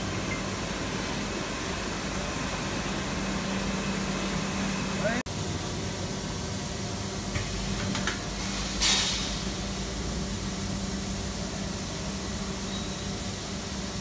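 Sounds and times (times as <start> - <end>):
air hiss: 8.4 - 9.6.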